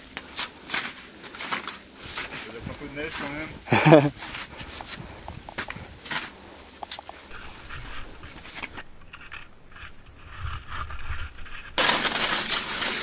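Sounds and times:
rush of snow: 0.0 - 8.8, 11.8 - 13.0
skis and poles scraping snow: 0.0 - 13.0.

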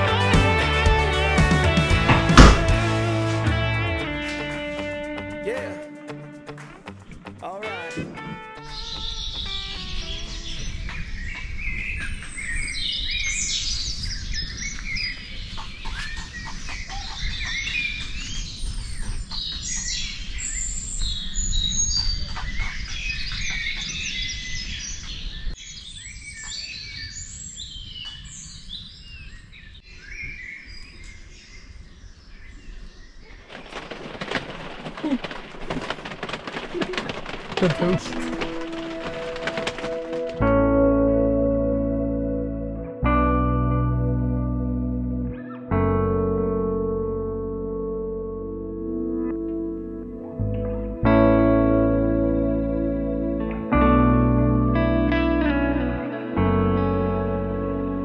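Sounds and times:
songbirds chirping and singing: 7.4 - 33.8.

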